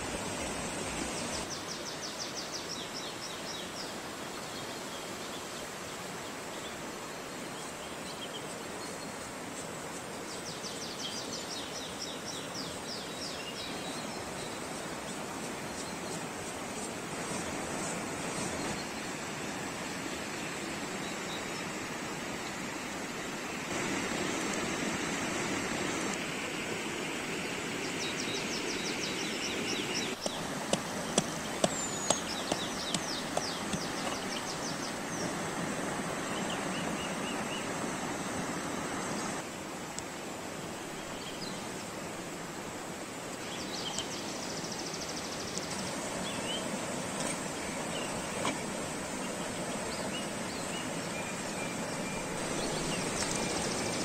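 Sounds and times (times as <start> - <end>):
rushing stream: 0.0 - 54.0
faint birds chirping: 27.5 - 35.5, 43.4 - 54.0.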